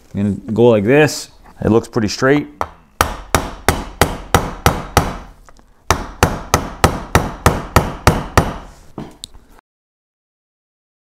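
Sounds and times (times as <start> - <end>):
mallet striking metal driver: 2.6 - 5.3, 5.9 - 8.7.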